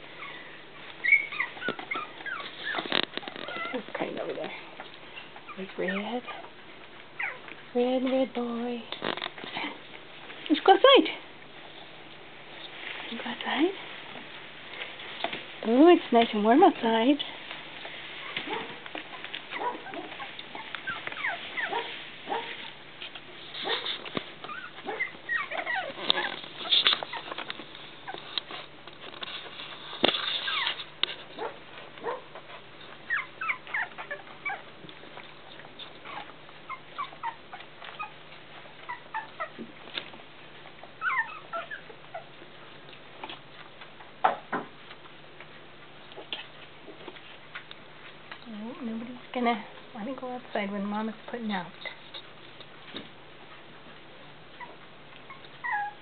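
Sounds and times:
puppies whimpering: 0.0 - 4.3, 5.1 - 7.6, 18.2 - 22.7, 23.6 - 28.7, 30.2 - 39.7, 40.7 - 42.5, 54.5 - 56.0.

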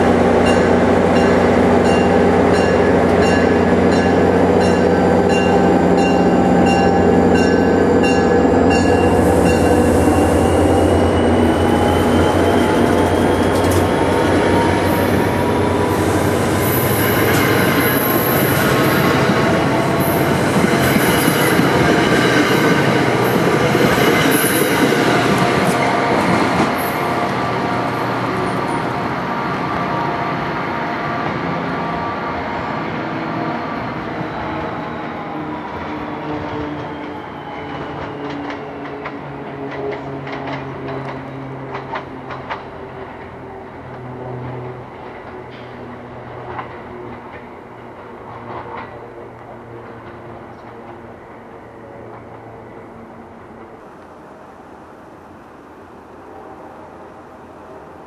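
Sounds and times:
train passing with rising whine: 0.0 - 58.0
wheel squeal: 9.4 - 15.0.

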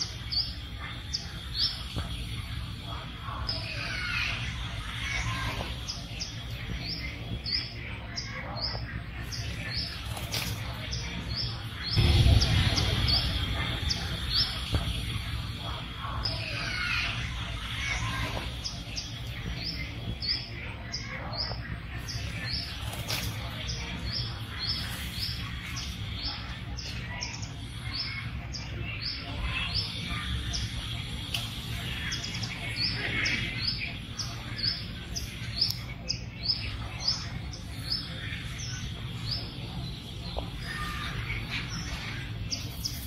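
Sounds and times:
steady low rumble: 11.0 - 17.9.

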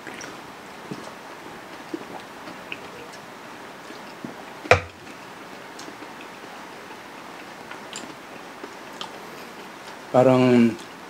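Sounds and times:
low hiss: 0.0 - 11.0
metal can knocking on table: 4.7 - 5.0.

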